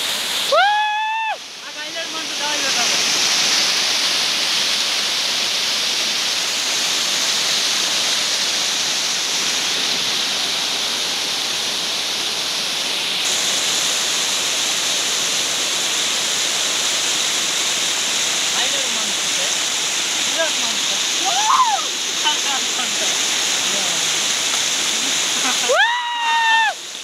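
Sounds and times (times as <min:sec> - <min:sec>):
waterfall cascading over rocks: 0:00.0 - 0:27.0.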